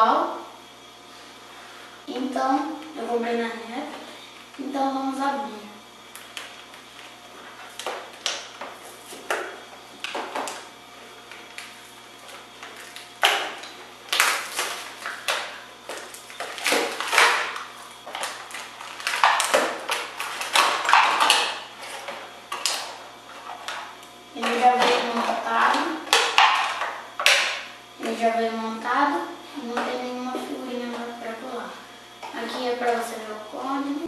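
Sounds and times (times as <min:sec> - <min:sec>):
plastic pack tearing and crinkling: 0:12.6 - 0:22.9.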